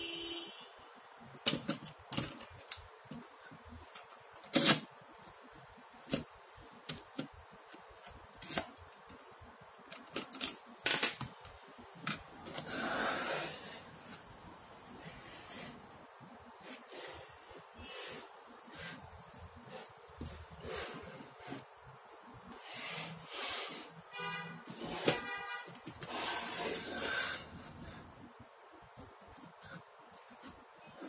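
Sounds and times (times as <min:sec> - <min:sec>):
metal clicks and knocks: 0:01.3 - 0:04.9, 0:06.0 - 0:12.6
metal scraping rub: 0:12.5 - 0:14.1, 0:24.6 - 0:28.1.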